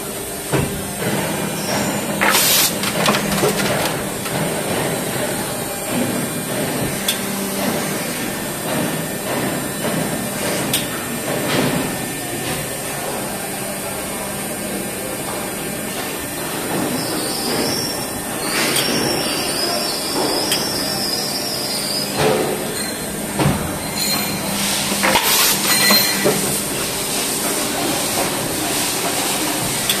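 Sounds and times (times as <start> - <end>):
machine mechanical hum: 0.0 - 30.0
mould knocks and clatter: 2.2 - 4.9
high machine squeal: 16.9 - 26.8.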